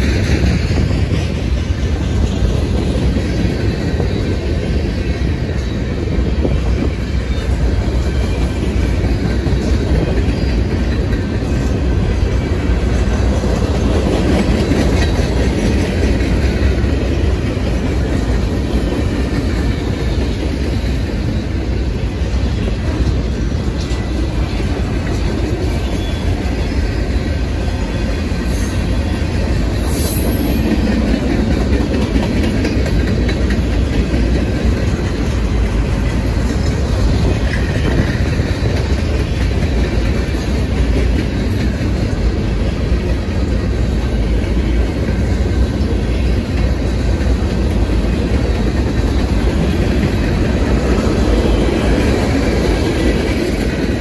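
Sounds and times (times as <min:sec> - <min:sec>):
train wheels rumbling on rails: 0:00.0 - 0:54.0
wheels clicking over track: 0:06.2 - 0:54.0.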